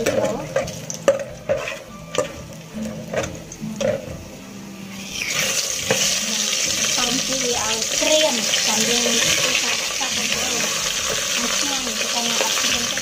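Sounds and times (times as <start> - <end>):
metal ladle scraping wok: 0.0 - 4.2
loud sizzling in hot oil: 0.0 - 13.0.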